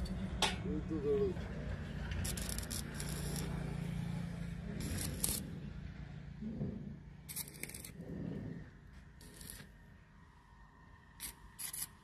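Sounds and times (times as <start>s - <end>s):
welding arc crackling: 2.2s - 3.5s, 4.8s - 5.5s, 7.3s - 8.0s, 9.2s - 9.7s.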